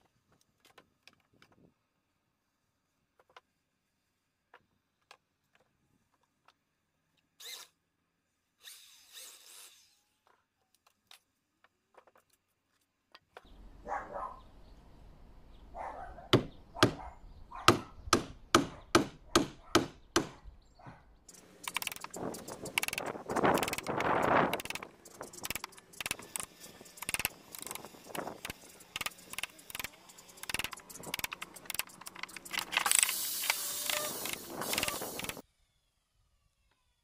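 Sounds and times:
wood blocks knocking and scraping: 0.0 - 1.8, 3.1 - 3.6, 10.2 - 13.5, 21.3 - 35.4.

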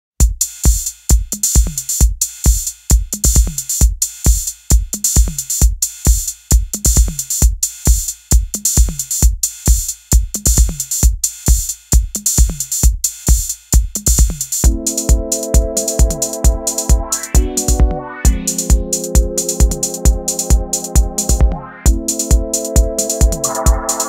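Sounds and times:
electronic drum-machine beat: 0.2 - 24.0.

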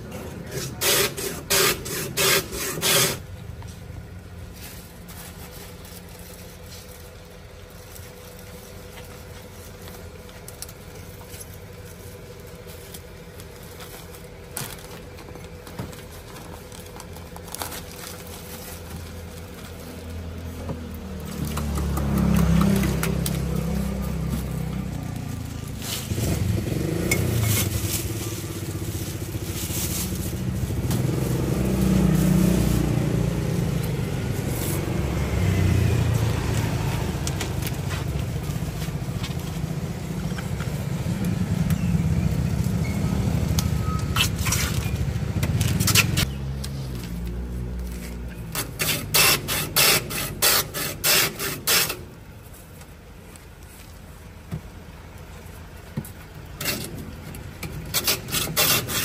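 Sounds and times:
road traffic rumble: 0.0 - 59.0
ice shaver scraping ice: 0.4 - 3.2, 48.6 - 52.1, 56.6 - 59.0.

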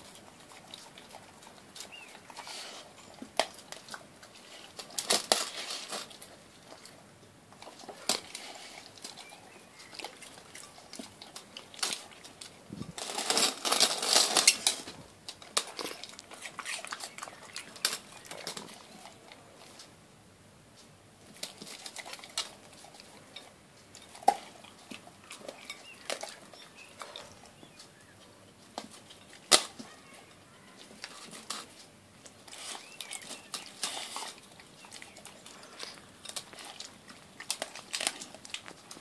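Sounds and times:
dog licking and chewing: 0.0 - 19.9, 21.2 - 28.0, 28.6 - 39.0.

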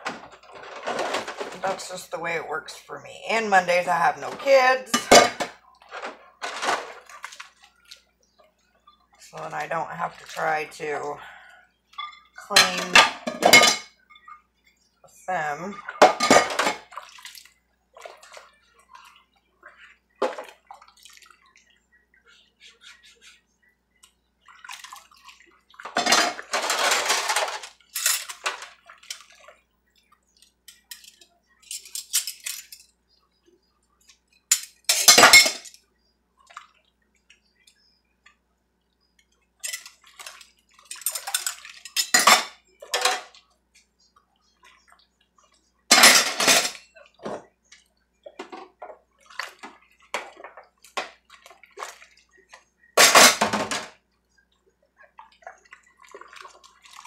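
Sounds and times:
dishes and cutlery clattering: 0.0 - 1.8, 4.9 - 7.1, 12.0 - 14.4, 15.8 - 16.9, 25.9 - 29.3, 30.7 - 32.9, 34.5 - 35.8, 39.6 - 40.0, 40.9 - 43.3, 45.9 - 47.5, 53.0 - 53.9
water splashing: 0.0 - 11.4, 15.1 - 23.3, 24.0 - 30.6, 39.3 - 57.0.

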